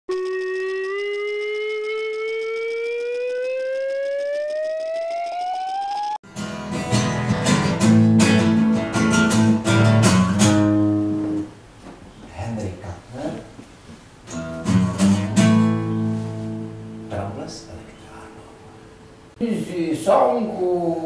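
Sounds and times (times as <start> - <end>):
steady tone rising in pitch: 0.1 - 6.2
acoustic guitar strumming chords: 6.2 - 11.6, 14.3 - 19.1.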